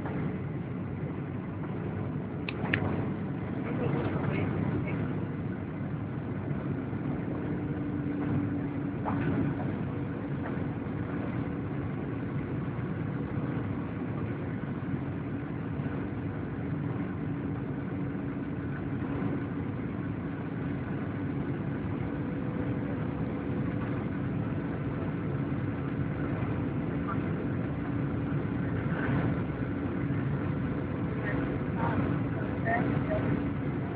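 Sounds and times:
jet engine drone: 0:00.0 - 0:33.9
steady cabin hum: 0:00.0 - 0:33.9.

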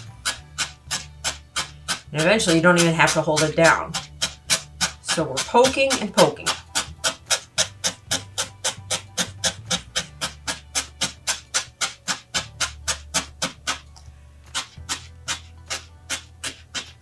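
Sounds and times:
felting needle poking into foam: 0:00.0 - 0:13.9, 0:14.5 - 0:17.0.

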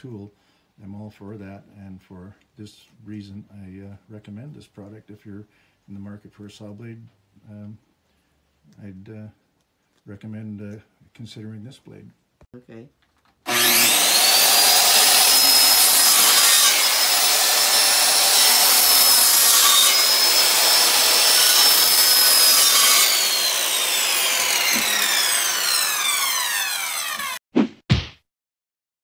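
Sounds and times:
circular saw cutting wood: 0:13.5 - 0:27.4
saw blade winding down: 0:13.5 - 0:27.4.

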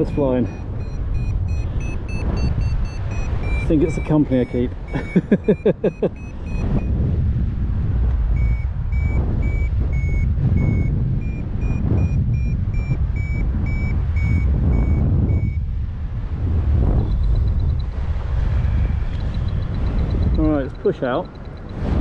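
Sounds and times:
variometer short high beeps: 0:00.0 - 0:07.0, 0:08.4 - 0:15.6, 0:19.1 - 0:21.9
wind noise on microphone: 0:00.0 - 0:22.0.

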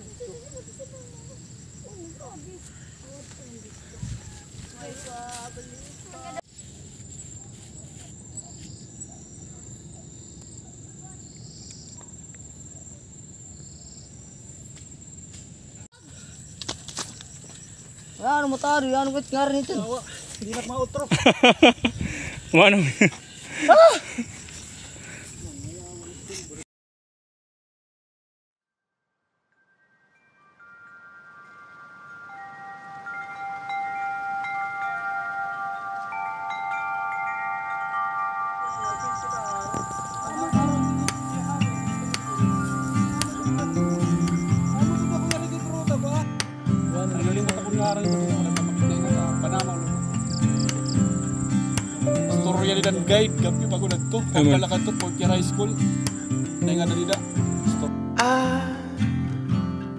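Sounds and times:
crickets trilling: 0:00.0 - 0:26.6, 0:30.2 - 0:59.5
chimes ringing: 0:29.5 - 0:57.8.

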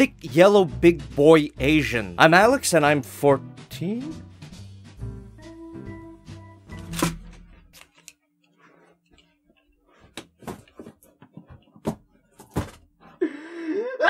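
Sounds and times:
knocks and thumps: 0:10.1 - 0:13.0.

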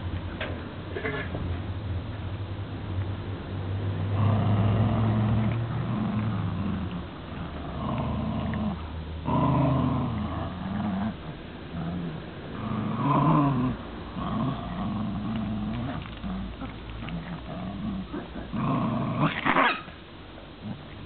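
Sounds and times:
dogs growling in play: 0:03.8 - 0:19.9, 0:20.6 - 0:21.0.

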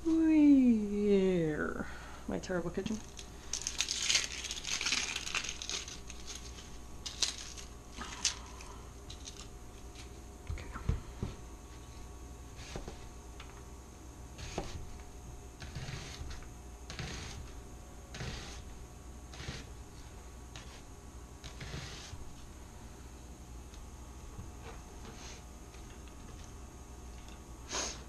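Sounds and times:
papery rustling and tearing: 0:03.0 - 0:10.1.

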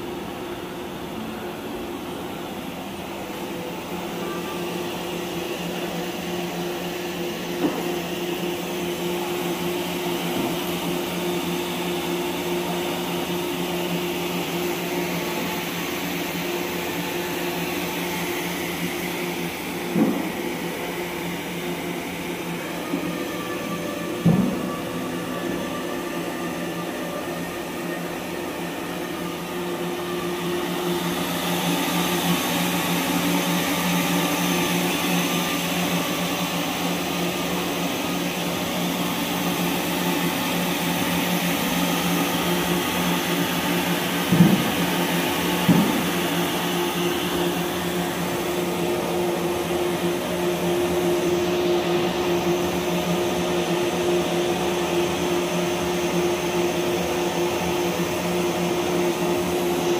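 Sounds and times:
knitting machine humming and whirring: 0:00.0 - 0:59.9.

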